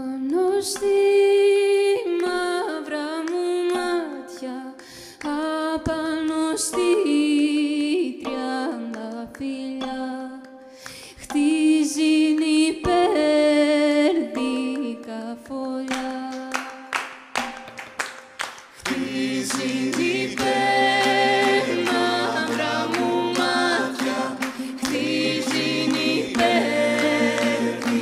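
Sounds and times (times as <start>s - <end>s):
woman singing melody: 0.0s - 16.8s, 18.8s - 28.0s
backing voices singing: 18.8s - 28.0s.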